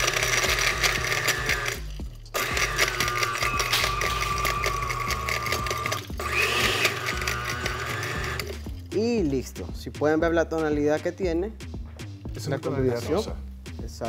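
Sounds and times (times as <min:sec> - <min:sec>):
blender motor whining: 0:00.0 - 0:08.7.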